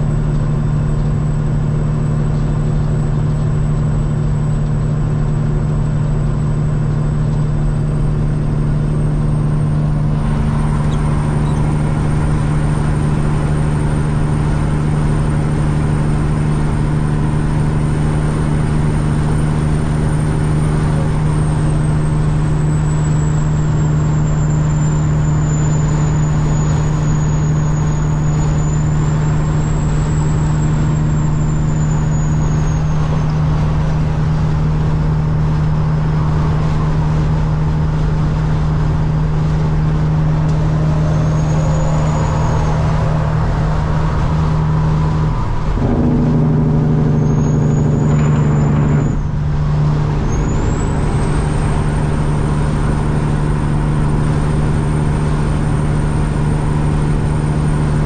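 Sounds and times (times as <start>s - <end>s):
diesel truck engine droning: 0.0s - 58.0s
faint high whistle: 22.7s - 33.4s, 40.6s - 43.7s, 47.1s - 49.3s.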